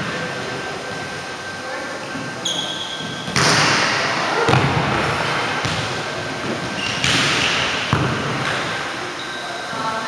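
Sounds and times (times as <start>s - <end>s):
echoing gym noise: 0.0s - 10.0s
volleyballs thumping on gym floor: 3.0s - 8.8s.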